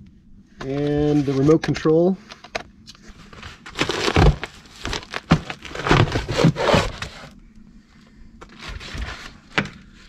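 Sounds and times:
cardboard box and plastic wrap rubbing: 3.1s - 7.3s, 8.5s - 10.0s.

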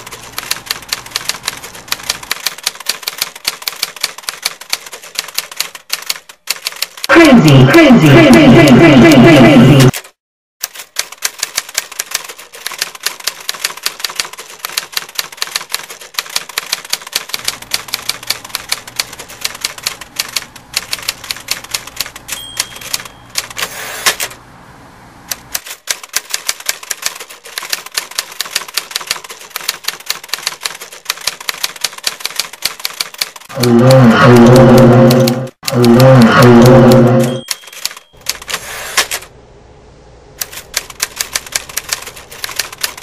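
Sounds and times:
typewriter keys clacking: 0.0s - 7.1s, 9.8s - 24.3s, 25.3s - 33.5s, 34.4s - 39.2s, 40.4s - 43.0s
typewriter carriage return: 9.8s - 24.4s, 25.3s - 33.5s, 37.2s - 39.3s, 40.4s - 43.0s
typewriter bell ding: 22.2s - 23.7s, 37.1s - 38.5s.

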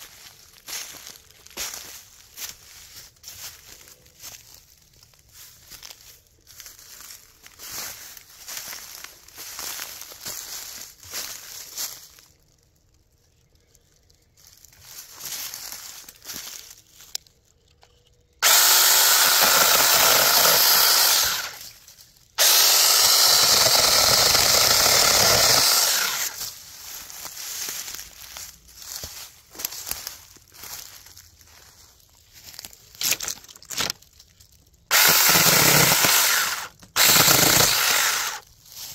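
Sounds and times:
dry leaves rustling underfoot: 0.0s - 18.4s, 21.0s - 22.4s, 25.6s - 34.9s, 38.0s - 38.9s
chainsaw cutting log: 18.4s - 21.6s, 22.4s - 26.4s, 34.9s - 38.4s.

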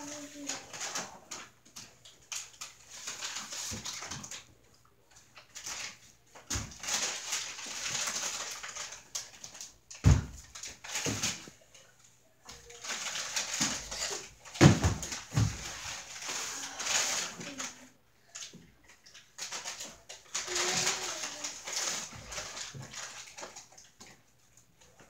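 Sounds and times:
rustling: 5.1s - 25.0s.

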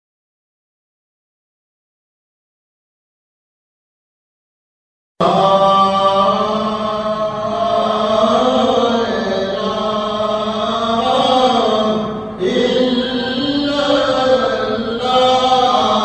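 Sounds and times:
person chanting in long tones: 5.2s - 16.0s.

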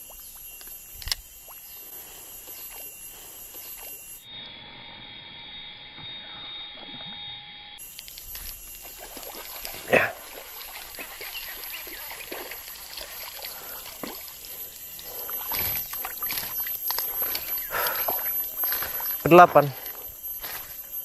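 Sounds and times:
water splashing and sloshing: 8.0s - 20.7s.

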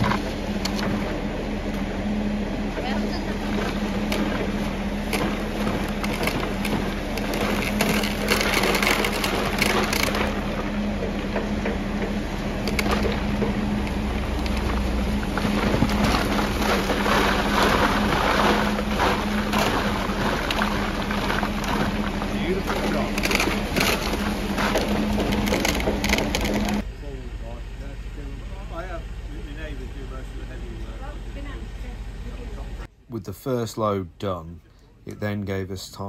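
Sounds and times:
machine hum and rumble: 0.0s - 36.0s
concrete rushing and slopping: 3.3s - 10.6s, 12.7s - 26.8s.

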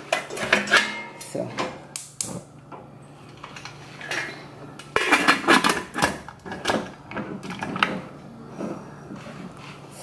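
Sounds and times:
metal lid clattering and scraping: 0.0s - 1.4s, 5.0s - 8.0s.

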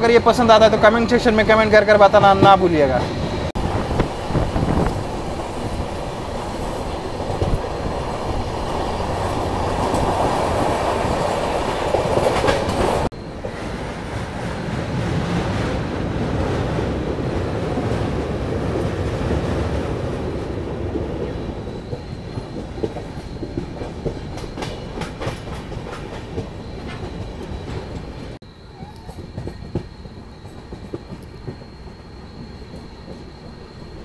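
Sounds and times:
train wheels rumbling on rails: 0.0s - 34.0s
rail-joint clicks: 1.5s - 13.8s, 21.7s - 34.0s
rushing air: 2.9s - 23.1s.

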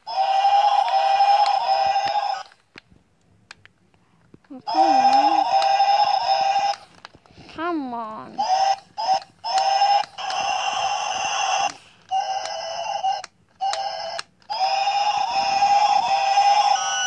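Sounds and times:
toy buzzy beeping tone: 4.7s - 6.8s, 8.3s - 17.0s.

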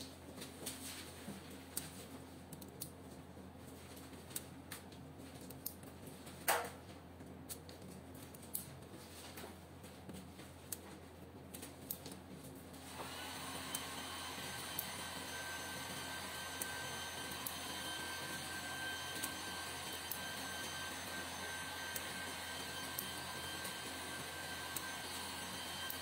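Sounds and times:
steady whirring: 12.8s - 26.0s.

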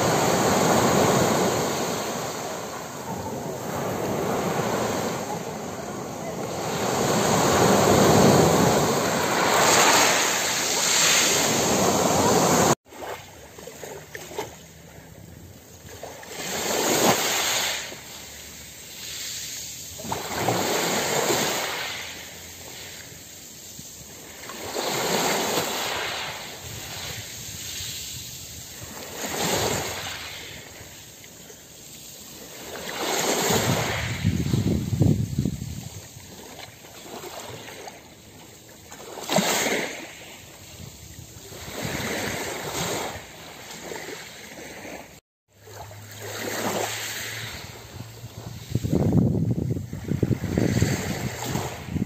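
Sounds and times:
steady rush of surf: 0.0s - 12.8s
small waves on pebble beach: 0.0s - 14.6s, 15.8s - 49.2s, 49.8s - 52.0s.

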